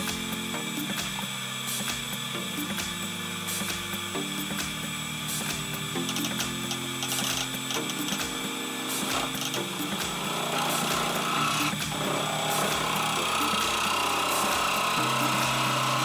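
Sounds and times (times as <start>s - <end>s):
soft background music: 0.0s - 16.0s
lathe tool cutting wood: 4.9s - 16.0s.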